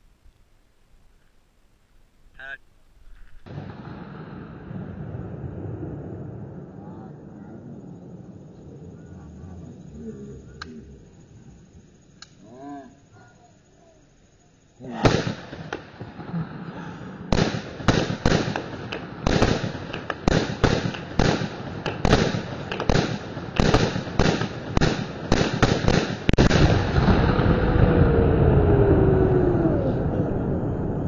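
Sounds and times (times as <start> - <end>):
gunshots: 14.9 - 27.4.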